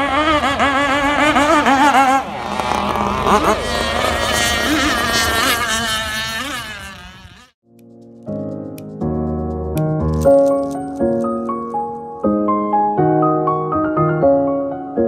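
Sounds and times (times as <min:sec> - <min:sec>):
small boat engines whining: 0:00.0 - 0:07.6.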